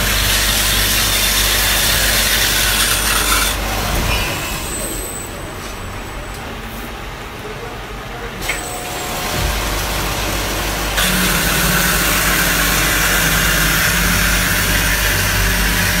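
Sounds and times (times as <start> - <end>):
bandsaw running: 0.0 - 5.2, 8.6 - 16.0.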